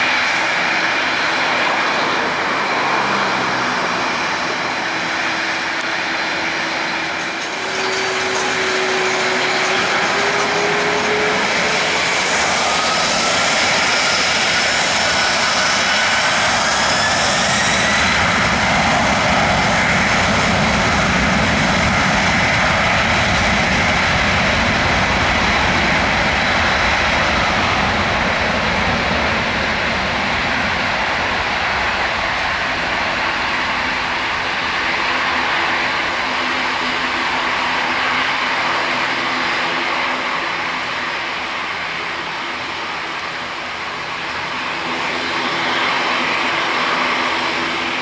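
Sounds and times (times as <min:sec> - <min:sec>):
jet engines spooling up: 0:00.0 - 0:48.0.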